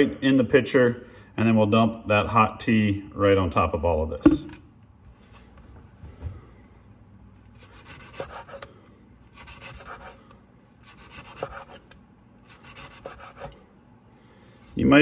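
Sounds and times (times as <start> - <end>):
knife slicing lemon: 7.5 - 8.7, 10.8 - 13.6.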